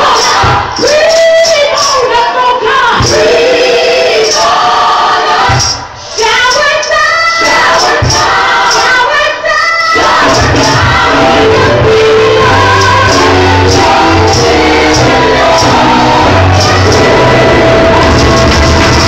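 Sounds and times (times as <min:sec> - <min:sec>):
gospel choir song: 0:00.0 - 0:19.0
low bass line: 0:10.3 - 0:19.0.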